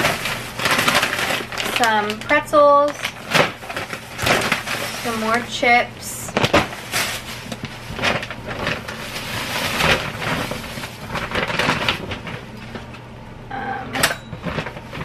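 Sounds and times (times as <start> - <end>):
plastic bags rustling: 0.0 - 13.0, 14.3 - 15.0.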